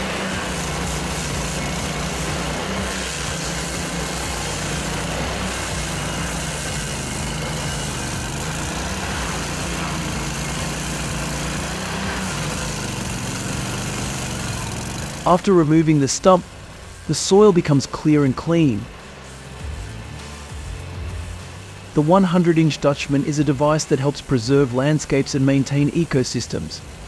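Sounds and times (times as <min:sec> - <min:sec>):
cutter wheel grinding stump: 0:00.0 - 0:27.0
stump grinder engine running: 0:00.0 - 0:27.0.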